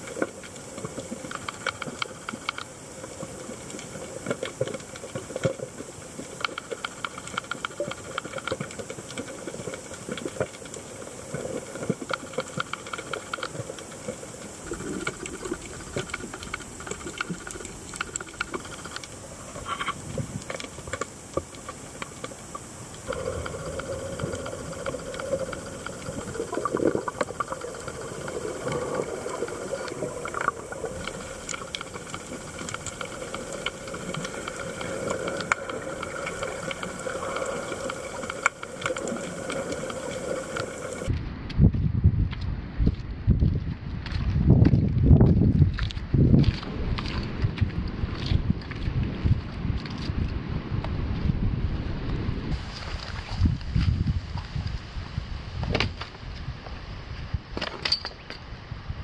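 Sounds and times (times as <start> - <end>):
underwater hiss: 0.0 - 41.1
crackling clicks underwater: 0.0 - 41.2, 44.0 - 51.0.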